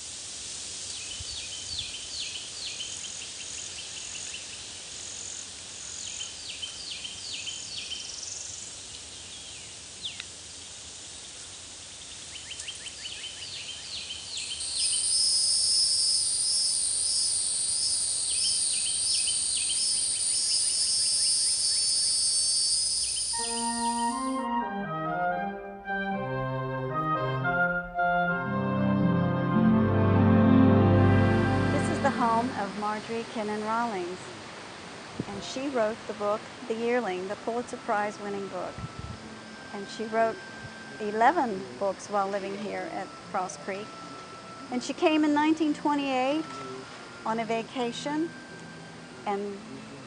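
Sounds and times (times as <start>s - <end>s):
birds chirping: 12.1s - 16.0s, 16.8s - 24.4s
high-pitched insect buzzing: 14.5s - 24.4s.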